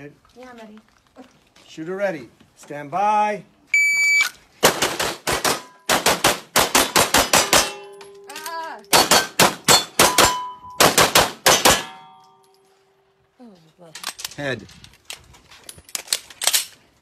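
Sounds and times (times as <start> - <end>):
pistol shots: 8.9 - 12.0.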